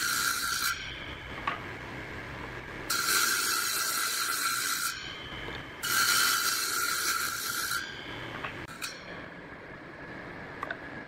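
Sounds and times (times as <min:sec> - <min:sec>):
table saw cutting wood: 0:00.0 - 0:01.0, 0:02.9 - 0:05.1, 0:05.8 - 0:08.0.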